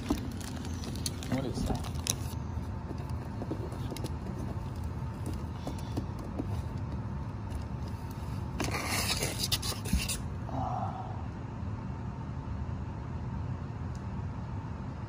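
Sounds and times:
plastic scraping and crinkling: 0.0s - 6.7s
handling rumble: 0.0s - 11.4s.

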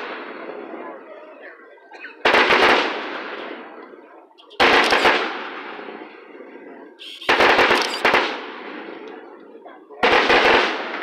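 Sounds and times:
fireworks crackling: 0.0s - 0.8s, 2.2s - 11.0s
fireworks shells bursting: 4.4s - 5.6s, 7.0s - 8.6s.

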